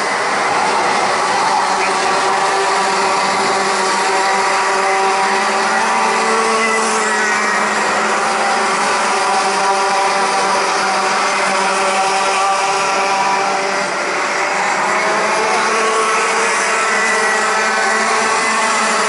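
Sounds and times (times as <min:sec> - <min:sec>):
kart engines buzzing: 0:00.0 - 0:19.0.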